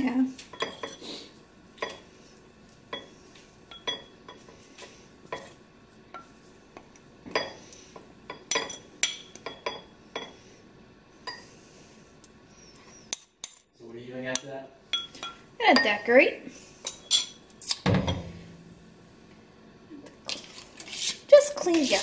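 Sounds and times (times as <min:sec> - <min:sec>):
metal spoon scraping a bowl: 0:20.3 - 0:22.0.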